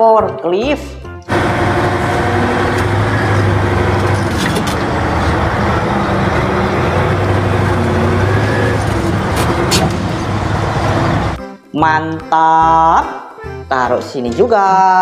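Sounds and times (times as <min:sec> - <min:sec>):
diesel engine running under load: 0:01.3 - 0:11.4.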